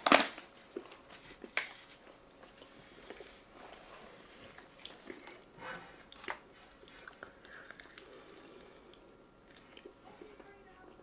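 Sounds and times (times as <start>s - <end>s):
chewing: 2.6s - 5.5s, 6.1s - 9.9s.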